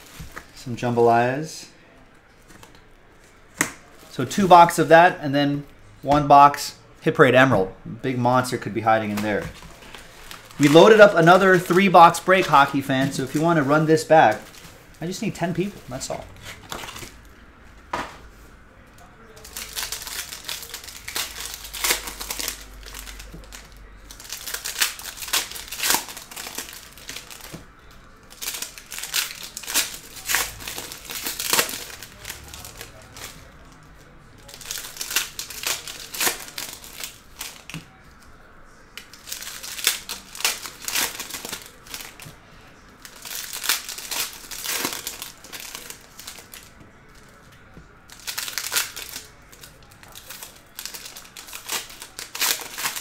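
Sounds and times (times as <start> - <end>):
foil wrappers crinkling and tearing: 8.4 - 17.2, 19.2 - 38.0, 39.0 - 53.0.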